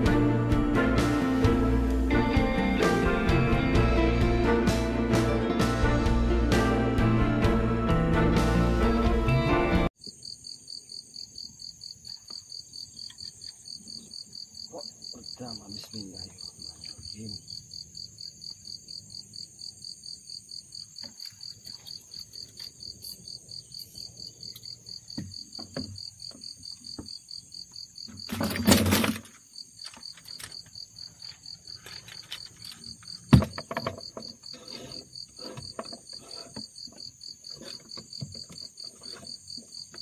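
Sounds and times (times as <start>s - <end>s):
insects chirping: 10.0s - 40.0s.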